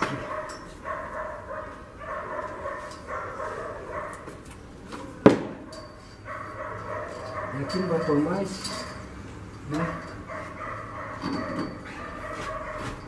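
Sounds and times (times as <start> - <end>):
dog barking: 0.1 - 4.3, 6.3 - 7.9, 9.8 - 13.0.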